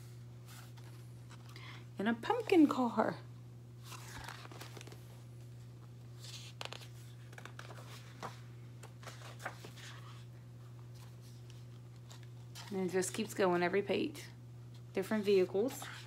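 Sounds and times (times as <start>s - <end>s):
steady low hum: 0.0s - 16.0s
paper pages rustling and turning: 0.4s - 1.6s, 3.8s - 13.4s, 14.7s - 16.0s.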